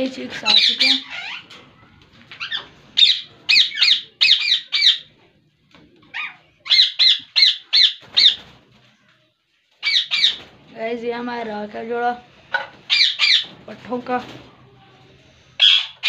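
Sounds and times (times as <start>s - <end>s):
parakeets harsh calls: 0.4s - 1.5s, 2.4s - 5.1s, 6.1s - 8.5s, 9.8s - 10.4s, 12.9s - 13.5s, 15.6s - 16.0s.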